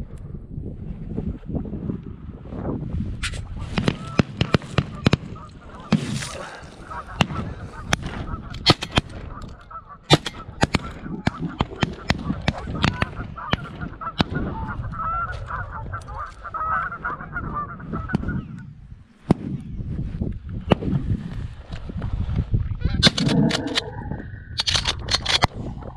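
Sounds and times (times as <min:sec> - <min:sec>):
geese honking: 0:03.5 - 0:18.7.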